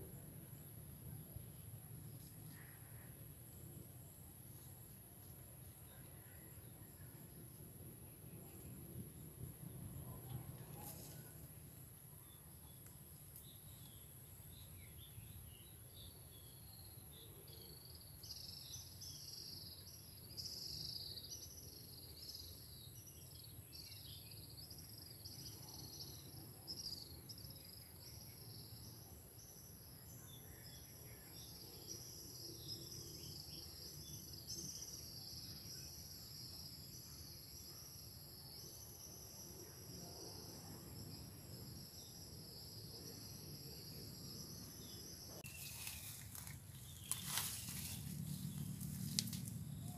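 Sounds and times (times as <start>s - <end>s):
insects chirping: 5.6s - 49.9s
low steady rumble: 46.1s - 49.9s.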